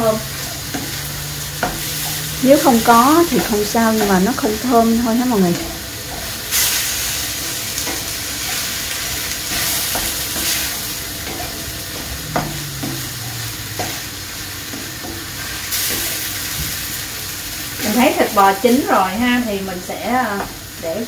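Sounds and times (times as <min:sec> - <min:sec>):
meat sizzling in a frying pan: 0:00.0 - 0:21.0
spatula knocking against pan: 0:11.2 - 0:13.1.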